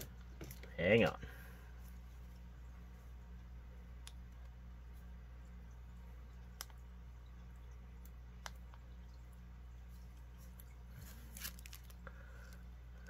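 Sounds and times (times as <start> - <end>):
steady low hum: 0.0 - 13.0
cellophane rustle: 10.4 - 12.6.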